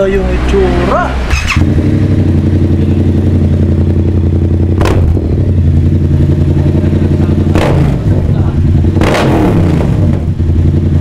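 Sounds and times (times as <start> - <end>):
motorcycle engine idling: 1.4 - 9.0, 9.8 - 11.0.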